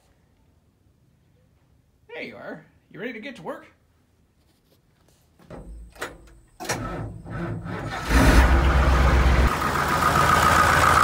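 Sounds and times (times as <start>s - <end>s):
engine rumbling with high tone: 5.5s - 11.0s.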